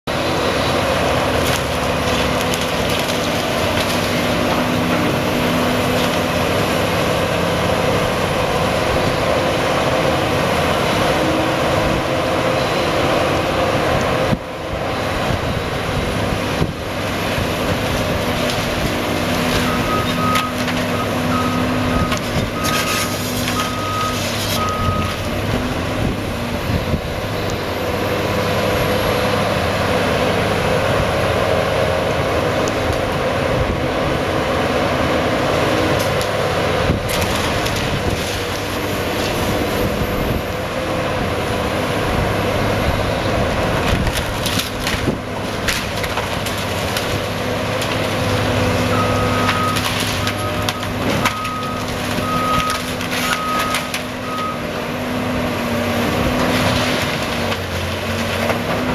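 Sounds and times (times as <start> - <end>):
excavator diesel engine running: 0.0 - 58.9
breaking debris crunching: 1.2 - 6.8, 35.8 - 39.5, 43.3 - 58.9
reversing alarm beeping: 19.6 - 25.2, 48.8 - 54.8.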